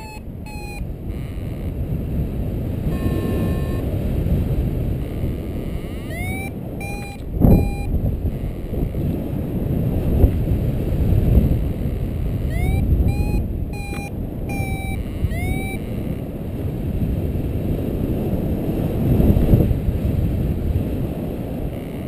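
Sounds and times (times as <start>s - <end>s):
variometer beeping: 0.0s - 9.2s, 11.2s - 16.6s, 21.6s - 22.0s
gust buffeting microphone: 0.0s - 22.0s
wind rushing over microphone: 0.0s - 22.0s.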